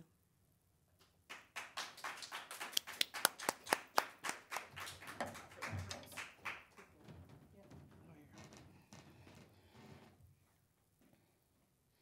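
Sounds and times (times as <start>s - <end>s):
audience clapping: 1.0s - 7.1s.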